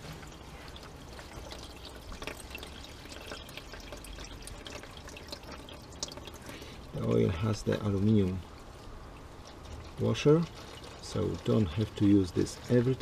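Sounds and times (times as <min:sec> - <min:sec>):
oil pouring into plastic pan: 0:00.0 - 0:08.4, 0:09.4 - 0:13.0.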